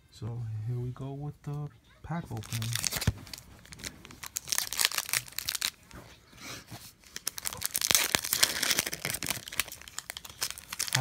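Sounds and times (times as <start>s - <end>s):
foil wrapper crackling: 2.3s - 6.0s, 7.0s - 11.0s.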